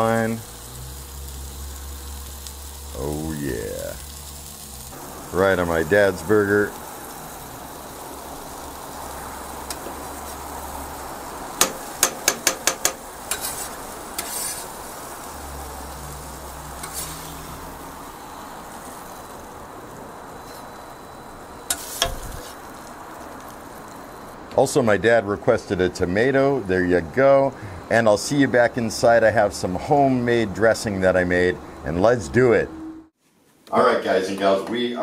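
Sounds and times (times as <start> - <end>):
food sizzling on a griddle: 0.0 - 24.4
metal spatula scraping and clacking: 11.6 - 14.7, 16.8 - 17.3, 21.7 - 22.5.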